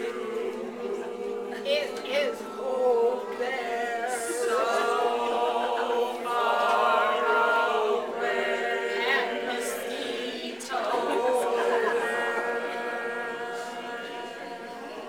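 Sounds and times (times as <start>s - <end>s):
women's choir singing: 0.0s - 15.0s.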